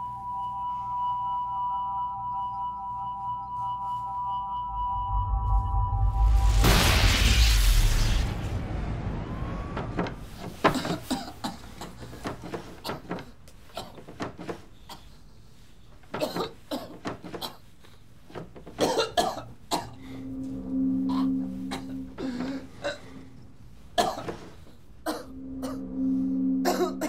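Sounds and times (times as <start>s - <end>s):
loud whoosh: 4.9s - 10.6s.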